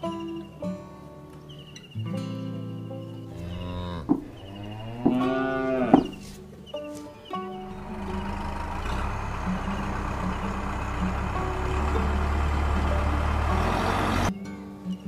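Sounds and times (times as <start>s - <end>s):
tractor engine rumbling: 3.3s - 6.4s, 7.2s - 14.3s.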